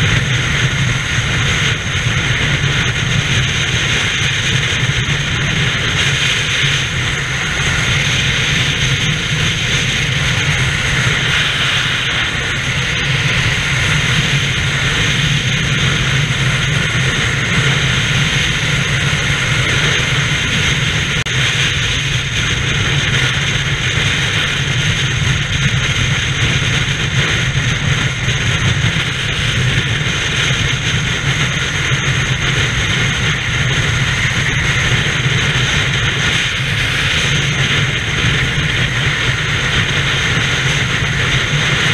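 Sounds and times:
tyre noise on road: 0.0 - 41.9
wind rushing: 0.0 - 41.9.

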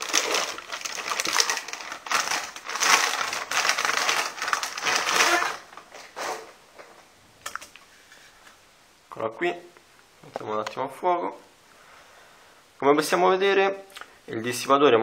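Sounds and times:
plastic packaging crinkling: 0.0 - 7.8.

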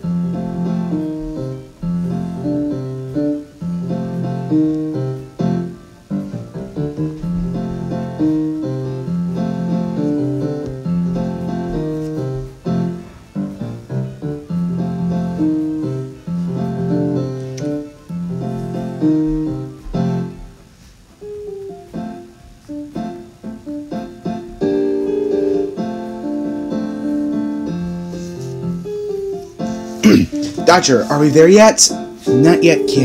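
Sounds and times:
piano background music: 0.0 - 33.0.

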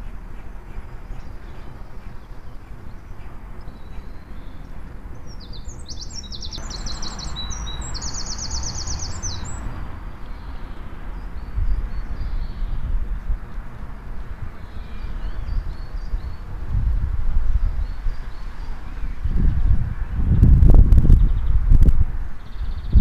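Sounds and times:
songbird chirping rapidly: 0.0 - 13.8
low outdoor rumble: 0.0 - 23.0.

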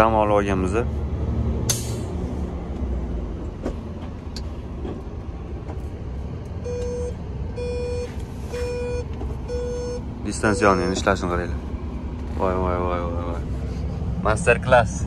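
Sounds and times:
truck engine and road rumble: 0.0 - 15.0
dashboard warning beeps: 6.6 - 11.4.

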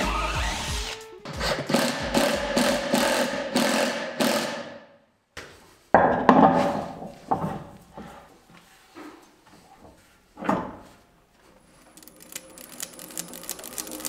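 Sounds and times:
impact driver rattling bursts: 1.4 - 4.7.

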